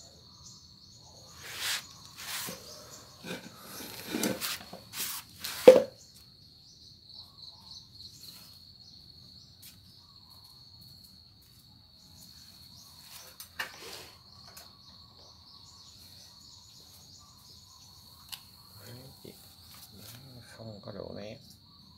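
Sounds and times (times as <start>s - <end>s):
cricket trilling: 0.0s - 21.9s
sharp knock: 5.6s - 6.0s.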